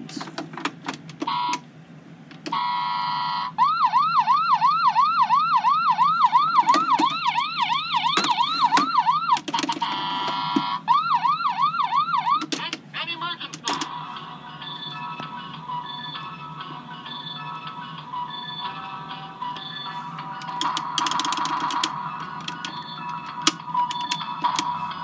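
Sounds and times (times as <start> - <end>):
toy siren wailing: 1.2 - 1.6, 2.5 - 12.7.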